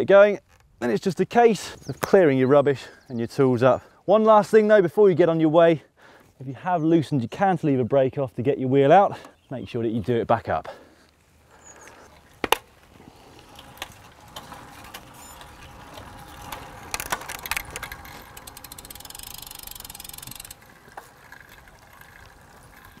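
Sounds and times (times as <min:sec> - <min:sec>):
bicycle freewheel ticking: 0:14.2 - 0:23.0.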